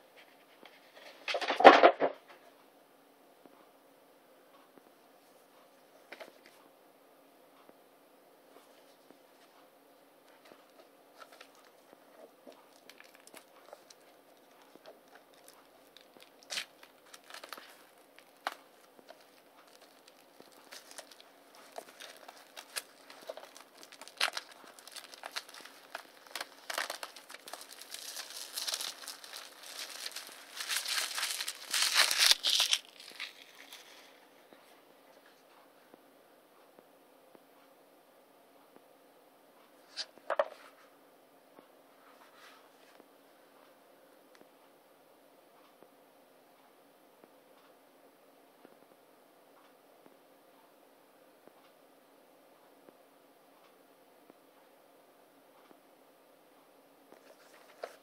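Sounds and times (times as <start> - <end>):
plastic wrap tearing and crinkling: 12.5 - 34.2.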